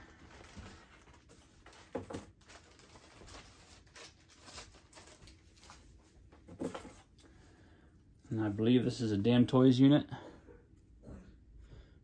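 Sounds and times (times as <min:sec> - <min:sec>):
plastic bag rustling: 0:00.0 - 0:07.1.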